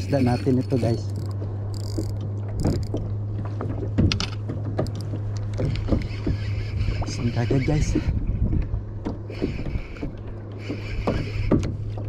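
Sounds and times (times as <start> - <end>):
fishing reel clicks and knocks: 0.0 - 3.0
steady low hum: 0.0 - 12.0.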